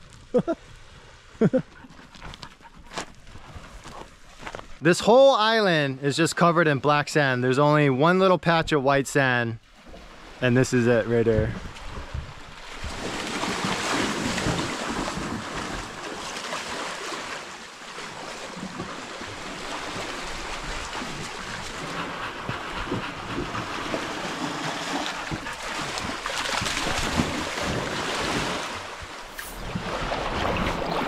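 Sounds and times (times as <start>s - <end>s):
small waves washing ashore: 9.7s - 31.0s
wind buffeting microphone: 11.2s - 15.8s
dog splashing through water: 12.7s - 31.0s.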